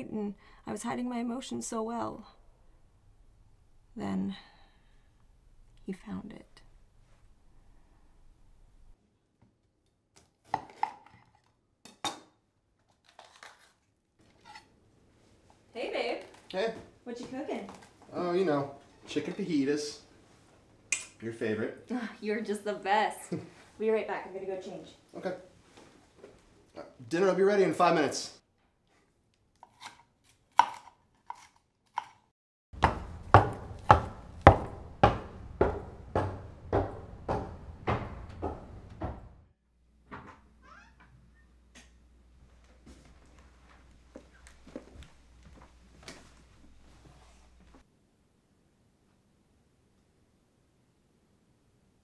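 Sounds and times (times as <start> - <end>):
footsteps on wooden stairs: 32.8 - 39.5.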